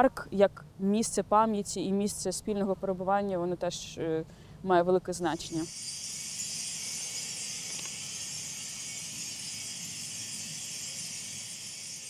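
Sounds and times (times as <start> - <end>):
metal chimes tinkling: 5.4 - 12.0.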